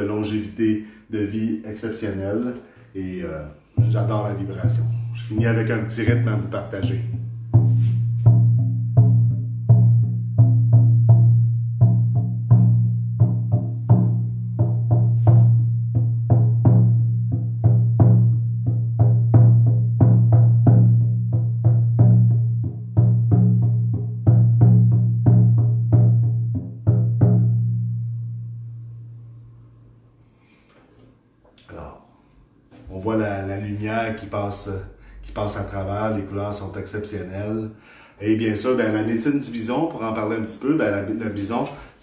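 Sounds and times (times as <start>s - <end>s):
hand drum beaten with deep hum: 3.7s - 28.9s.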